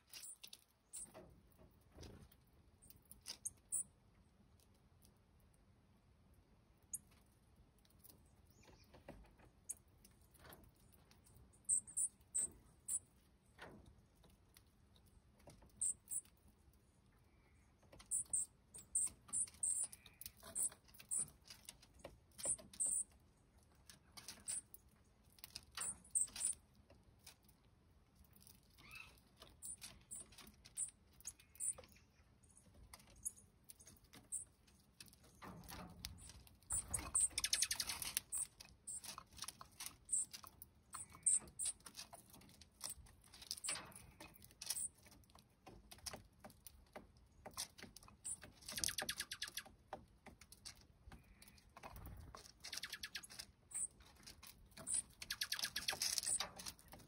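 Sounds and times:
birds pecking seeds clicks: 17.9 - 23.1, 32.8 - 57.0.

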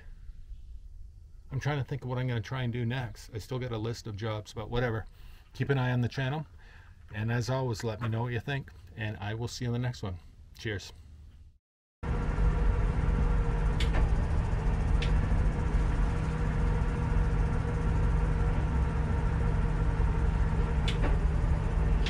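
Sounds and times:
boat engine idling: 12.0 - 22.0
sharp clicks: 13.8 - 14.1.

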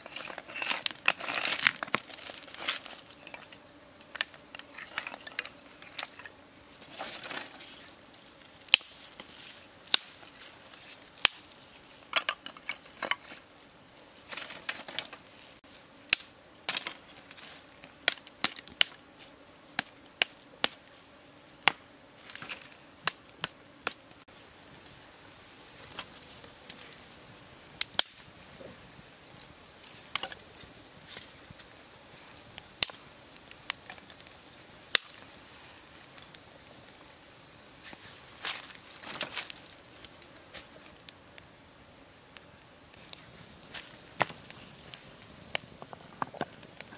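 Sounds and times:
rustling of sticks and leaves: 0.0 - 46.9
dry sticks snapping: 34.9 - 35.2.

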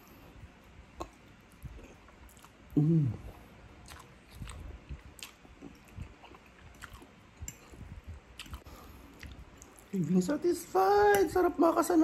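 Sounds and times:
wet chewing clicks and smacks: 1.0 - 2.8, 3.8 - 10.2.

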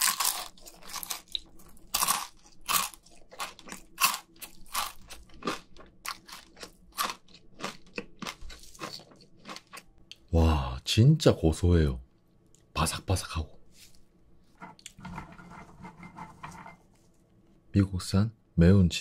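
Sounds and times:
chewing crispy chicken skin: 0.0 - 10.2.

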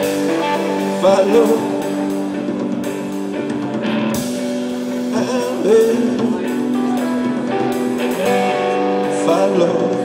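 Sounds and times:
man singing: 0.0 - 2.4, 5.0 - 10.0
drum kit: 0.0 - 10.0
electric guitar chords: 0.0 - 10.0.

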